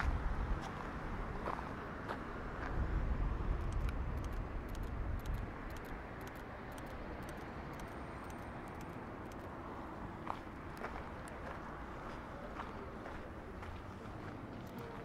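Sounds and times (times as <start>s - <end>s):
footsteps on pavement: 0.0s - 2.9s, 9.8s - 15.0s
steady traffic noise: 0.0s - 15.0s.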